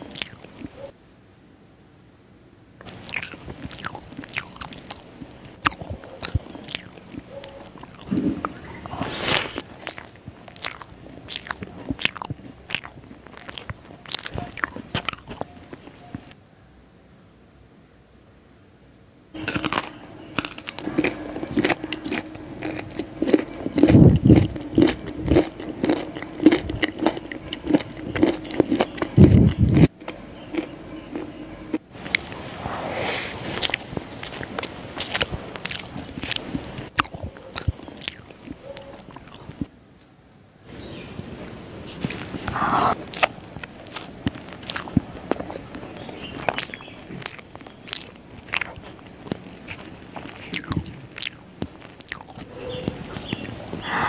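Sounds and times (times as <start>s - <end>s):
fingers squishing rice: 0.0s - 0.9s, 2.8s - 16.3s
person chewing: 0.0s - 0.9s, 2.8s - 16.3s, 19.4s - 39.7s, 41.9s - 54.0s
faint steady hum: 0.0s - 54.0s.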